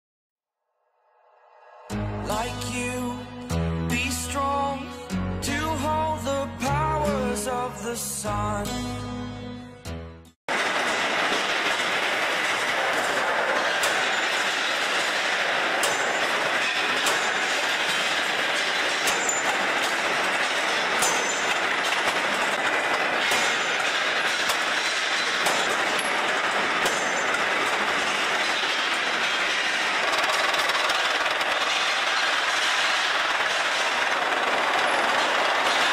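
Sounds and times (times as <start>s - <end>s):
steel cutting machinery running: 10.5s - 35.9s
clinks of steel on steel: 12.5s - 30.9s.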